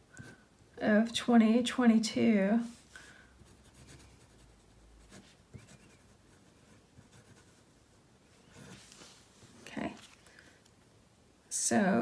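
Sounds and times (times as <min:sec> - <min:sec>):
marker scratching on paper: 0:03.5 - 0:07.6, 0:08.5 - 0:09.0.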